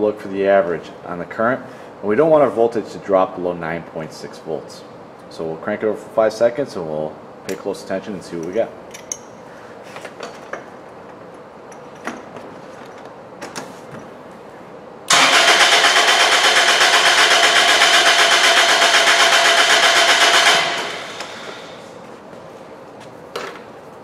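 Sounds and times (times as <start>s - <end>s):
car engine cranking by starter: 15.1s - 21.8s.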